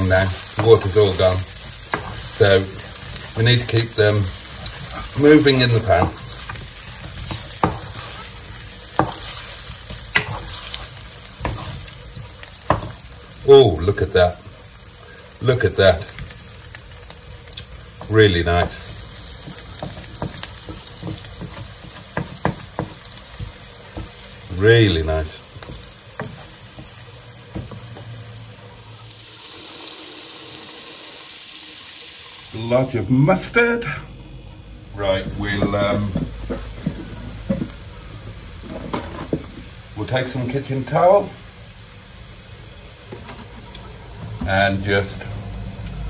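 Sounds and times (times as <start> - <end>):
potatoes sizzling in a frying pan: 0.0 - 46.0
wooden spoon knocking on pan: 1.9 - 2.3, 4.6 - 8.2, 8.9 - 10.6, 11.4 - 13.0, 18.0 - 24.2, 25.6 - 28.2, 35.2 - 37.8
wooden spoon knocking: 7.3 - 8.1, 19.4 - 24.2.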